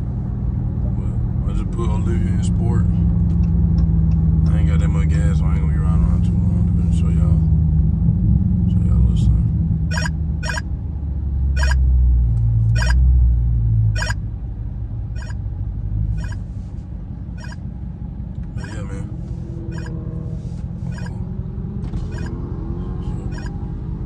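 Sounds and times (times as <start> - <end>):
car engine rumbling inside cabin: 0.0 - 24.0
radar detector chirping: 9.9 - 10.6, 11.6 - 11.8, 12.8 - 13.0, 14.0 - 14.2, 15.2 - 15.4, 16.2 - 16.4, 17.4 - 17.6, 18.6 - 18.9, 19.7 - 20.0, 20.9 - 21.2, 22.1 - 22.4, 23.3 - 23.6.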